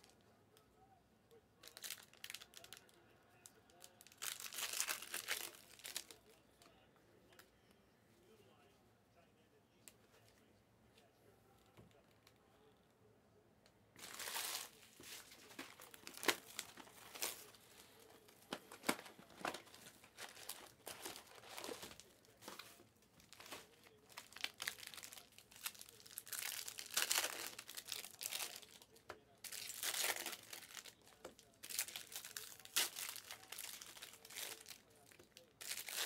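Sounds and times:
plastic wrappers crinkling and tearing: 0:01.6 - 0:06.4, 0:14.0 - 0:36.0
cards being handled: 0:14.0 - 0:25.3.

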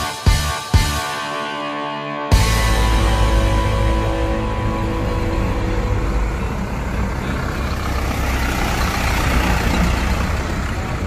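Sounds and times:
truck driving past: 0:02.4 - 0:11.0.

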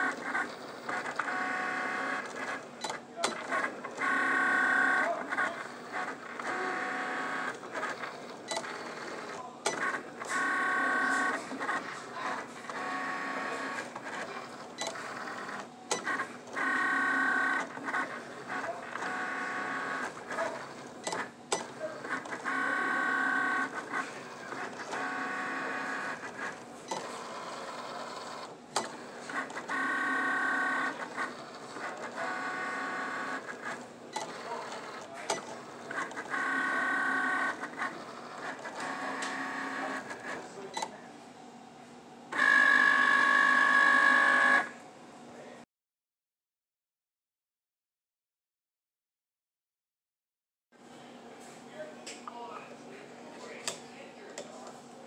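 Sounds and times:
cutting machine motors whining: 0:00.0 - 0:41.0, 0:42.3 - 0:44.7.

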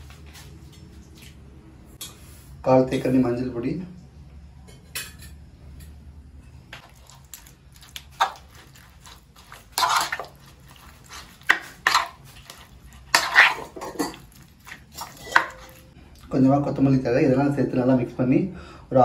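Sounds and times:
metal spoon scraping a bowl: 0:08.2 - 0:16.0.

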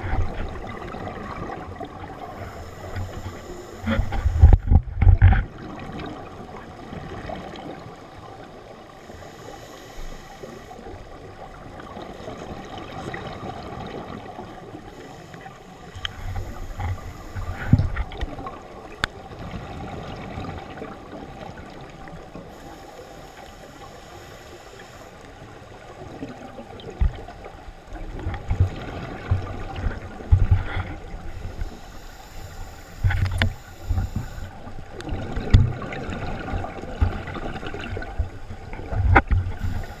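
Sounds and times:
muffled underwater background: 0:00.0 - 0:05.6, 0:08.4 - 0:19.3, 0:21.7 - 0:27.4, 0:28.0 - 0:40.0
underwater bubbles gurgling: 0:00.0 - 0:40.0.

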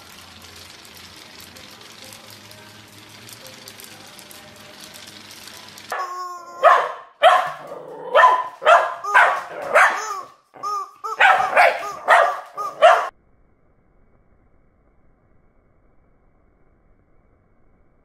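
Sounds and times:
rubber chicken toy squawk: 0:05.9 - 0:06.8, 0:09.0 - 0:13.1
puppy barking: 0:05.9 - 0:13.1.

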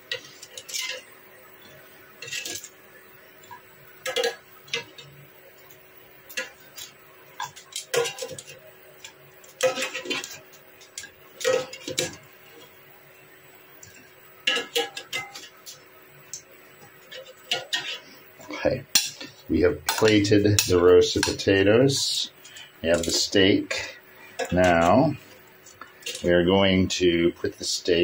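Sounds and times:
tongs clinking on metal basket: 0:18.9 - 0:23.8, 0:24.4 - 0:25.1, 0:25.8 - 0:26.5.

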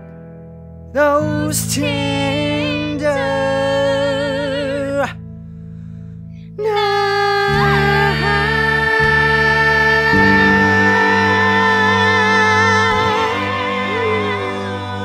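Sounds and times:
bass accompaniment: 0:00.0 - 0:15.0
man singing with vibrato: 0:01.0 - 0:05.2, 0:06.6 - 0:15.0
woman singing: 0:06.6 - 0:15.0.

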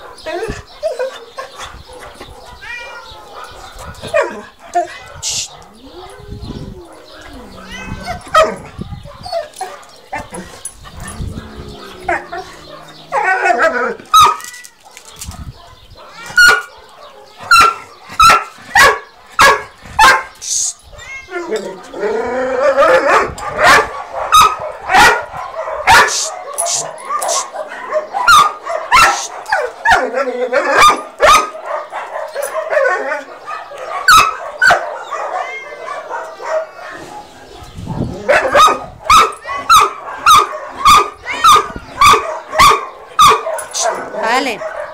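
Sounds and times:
dog whining and yelping: 0:00.3 - 0:14.5
dog barking: 0:01.9 - 0:07.2, 0:07.8 - 0:20.4, 0:22.8 - 0:44.9.

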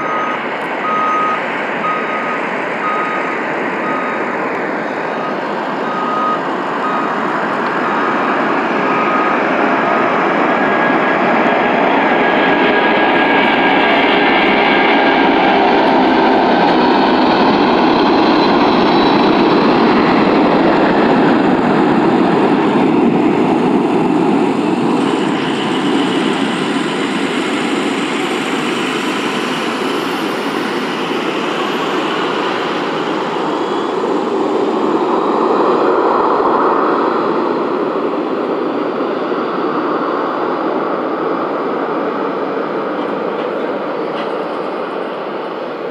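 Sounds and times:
jet engines at takeoff thrust: 0:00.0 - 0:45.9.

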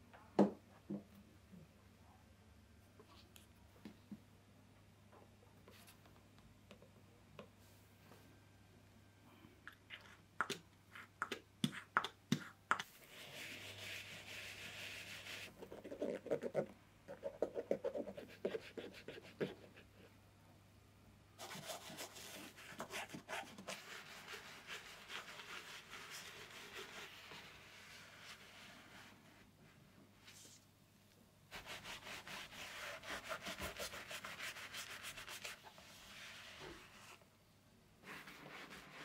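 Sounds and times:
soft hiss: 0:23.7 - 0:39.0.

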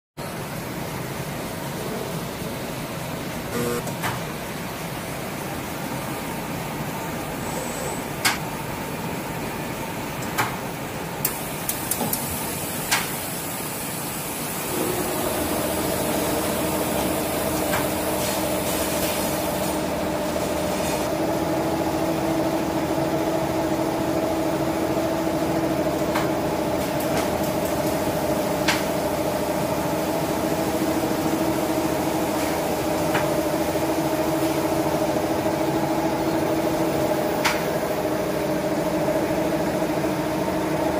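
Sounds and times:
two-pitched whine: 0:03.5 - 0:03.9.

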